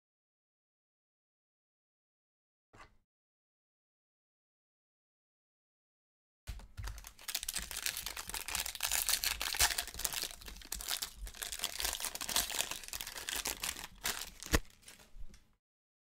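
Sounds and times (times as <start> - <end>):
plastic wrapper crinkling and tearing: 6.5 - 15.4.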